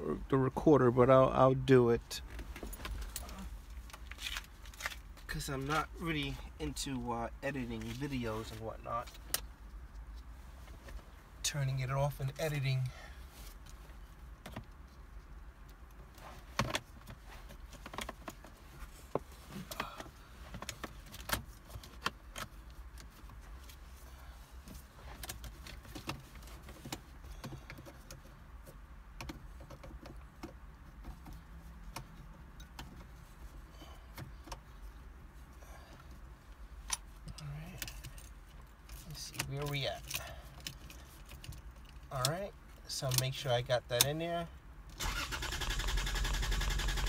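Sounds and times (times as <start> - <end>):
clicks and taps under dashboard: 24.6 - 33.2.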